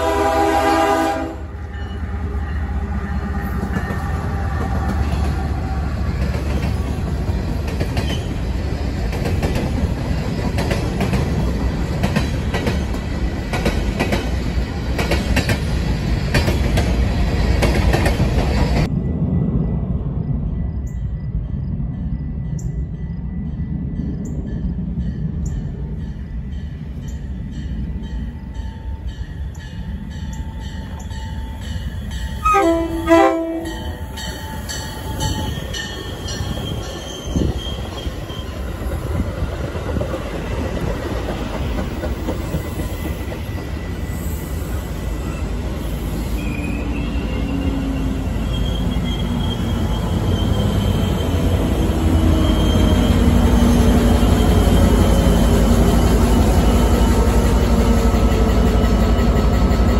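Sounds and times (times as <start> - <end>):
train horn blast: 0.0 - 2.5, 32.4 - 34.2
rumble of passing train: 0.0 - 59.9
train bell ringing: 1.6 - 4.3, 18.8 - 39.0.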